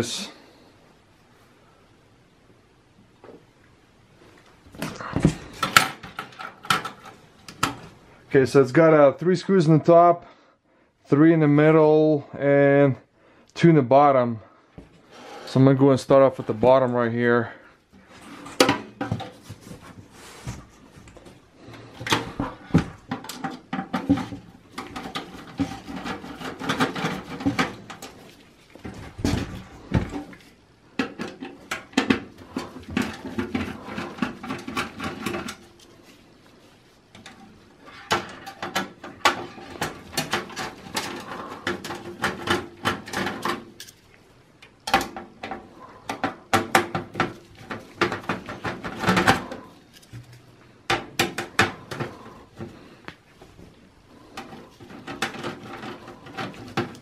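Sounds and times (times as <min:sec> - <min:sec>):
small metal rattles: 0:21.1 - 0:44.1.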